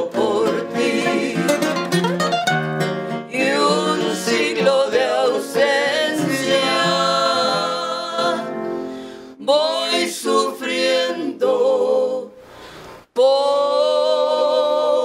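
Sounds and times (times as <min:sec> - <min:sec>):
nylon-string guitar melody: 0:00.0 - 0:08.8.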